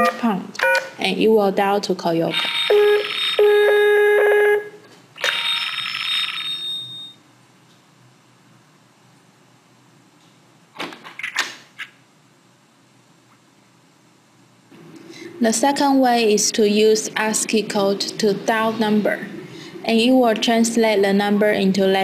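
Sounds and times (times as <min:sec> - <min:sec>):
phone ringtone: 0:02.3 - 0:07.2.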